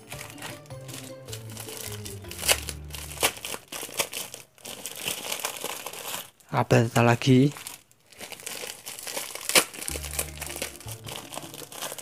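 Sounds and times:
soft background music: 0.0 - 4.4, 9.8 - 12.0
bubble mailer crinkling: 0.0 - 12.0.

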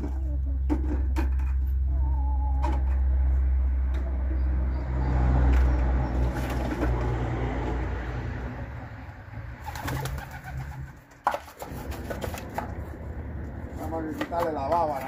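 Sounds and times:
pigeons cooing: 9.6 - 11.1.

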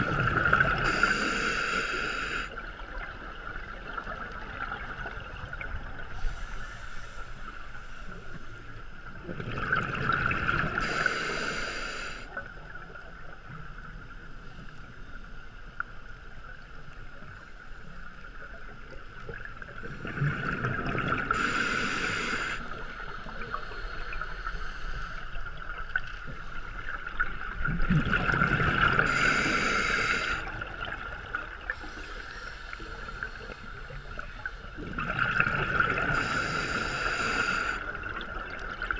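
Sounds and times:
exhaled bubbles rushing underwater: 0.0 - 1.2, 9.1 - 11.1, 18.6 - 21.7, 25.2 - 37.0
regulator inhalation hiss: 0.8 - 2.6, 6.2 - 8.5, 10.8 - 12.3, 21.3 - 25.4, 29.1 - 30.6, 31.8 - 34.7, 36.1 - 37.9.

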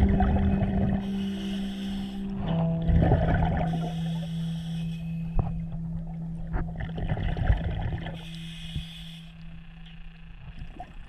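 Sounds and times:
diver exhaust bubbling underwater: 0.0 - 1.7, 2.3 - 8.2
soft music drone: 0.0 - 11.0.

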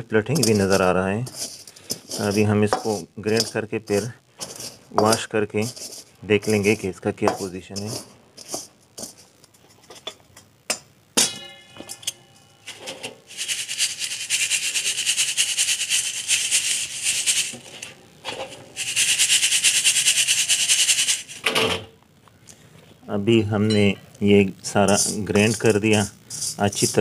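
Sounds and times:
metal pieces rattling in sieve: 0.3 - 9.3, 12.7 - 21.5, 24.7 - 27.0
ringing metal strike: 11.2 - 12.8.

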